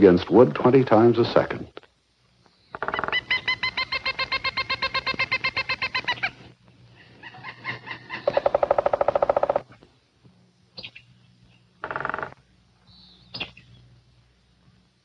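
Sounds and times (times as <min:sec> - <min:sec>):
woodpecker calling: 0:02.4 - 0:09.8, 0:10.8 - 0:13.8.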